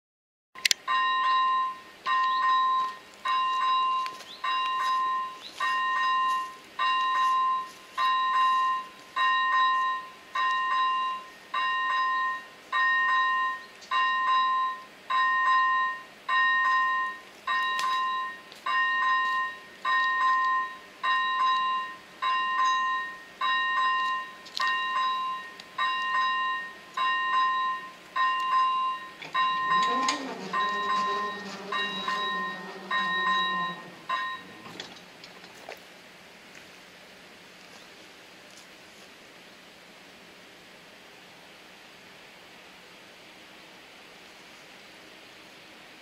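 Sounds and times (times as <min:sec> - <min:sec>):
electronic level crossing bell dinging: 0:00.9 - 0:34.8.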